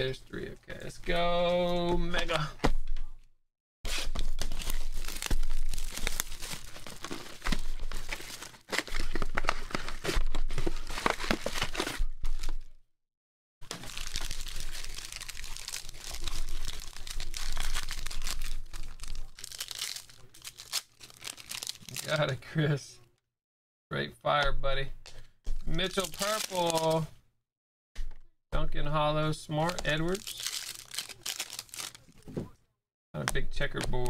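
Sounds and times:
card packs rustling and clicking: 3.9 - 12.7, 13.6 - 22.4, 25.7 - 27.0, 29.6 - 32.5
shrink-wrap crinkling and tearing: 3.9 - 12.7, 13.6 - 22.4, 25.7 - 27.0, 29.6 - 32.3.

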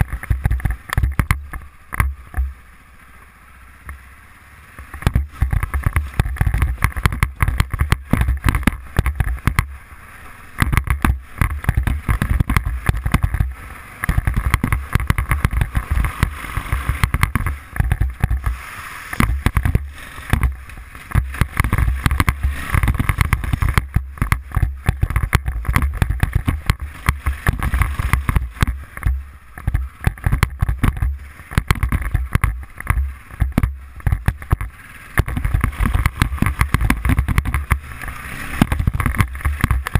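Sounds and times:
atv engine running: 0.0 - 39.9
bumps on microphone: 10.6 - 38.0.

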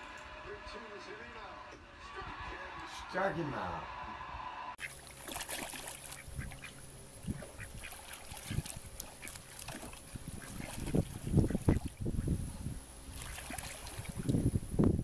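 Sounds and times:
water splashing and sloshing: 4.8 - 12.2, 13.0 - 14.5.

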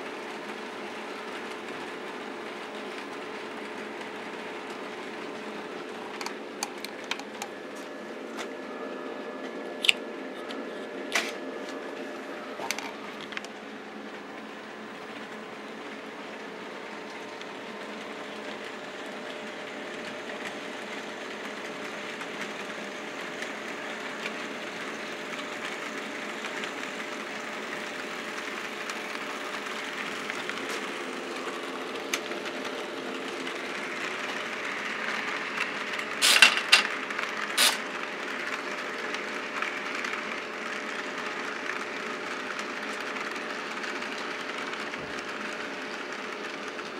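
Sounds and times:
model train motor hum: 0.0 - 46.9
wheels rattling on track: 19.8 - 46.9.

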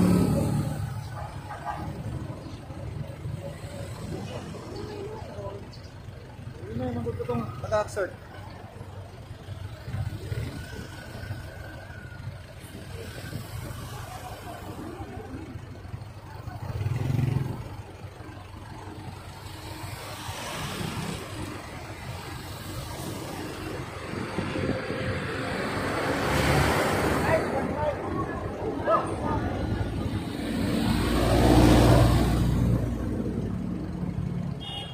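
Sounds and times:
large truck passing: 0.0 - 34.6
vehicles driving past: 0.0 - 34.9.

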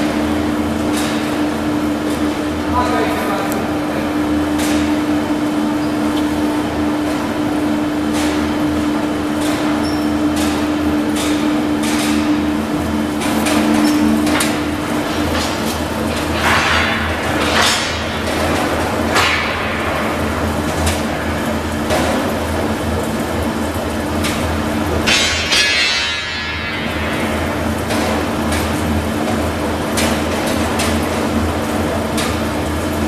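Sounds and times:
machine drive hum: 0.0 - 33.0
machine tone: 9.8 - 10.3
metallic clanks and rattles: 13.2 - 22.3, 25.0 - 29.4.

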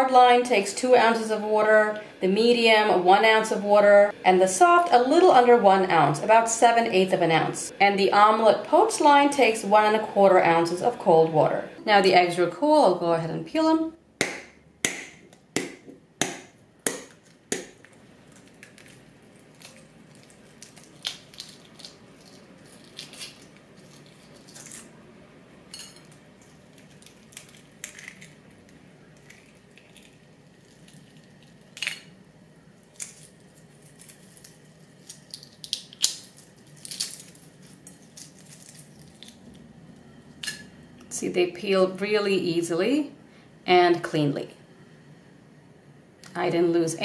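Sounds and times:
eggshell crackling as peeled: 16.9 - 24.9, 26.2 - 32.1, 32.8 - 40.0.

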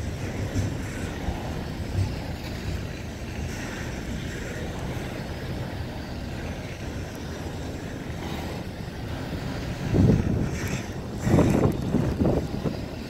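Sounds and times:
freight train wheels rumbling: 0.0 - 13.0.

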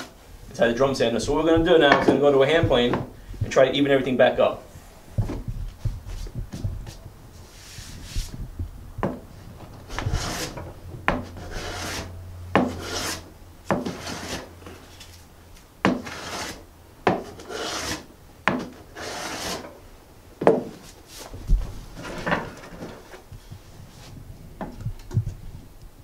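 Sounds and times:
hand plane cutting wood: 9.9 - 14.9, 15.8 - 19.8.

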